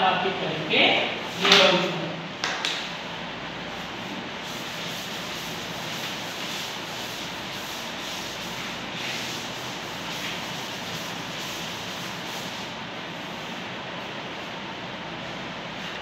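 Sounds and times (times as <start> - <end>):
duster rubbing on chalkboard: 3.8 - 13.7.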